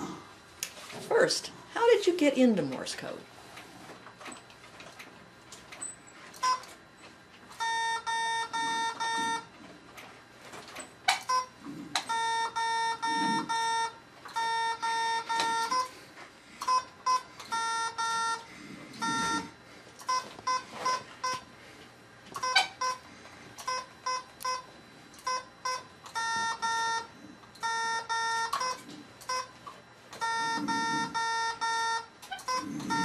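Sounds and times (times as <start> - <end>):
buzzy morse code beeps: 6.4 - 6.7, 7.6 - 9.6, 11.1 - 16.0, 16.6 - 21.5, 22.4 - 33.0.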